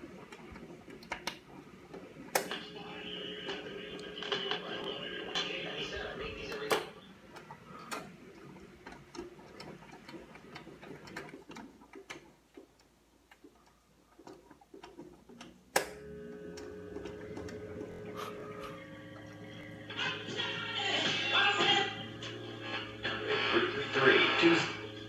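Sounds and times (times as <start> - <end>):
radio hum of held tones: 2.5 - 7.9, 17.2 - 25.0.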